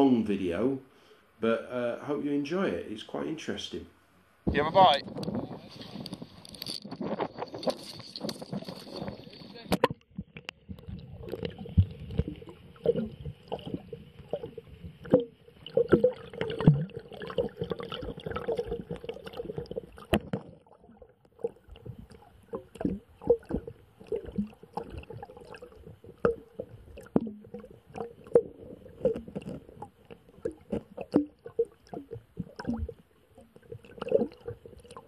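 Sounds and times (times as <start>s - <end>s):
faint steady hiss: 0.0s - 6.8s
underwater gurgling and sloshing: 4.2s - 35.0s.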